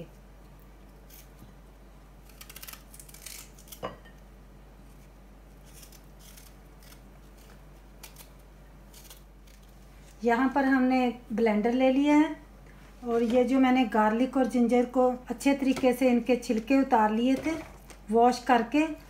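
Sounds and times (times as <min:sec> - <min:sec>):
knife scraping ginger: 0:01.0 - 0:01.4, 0:02.2 - 0:03.8, 0:04.9 - 0:09.7.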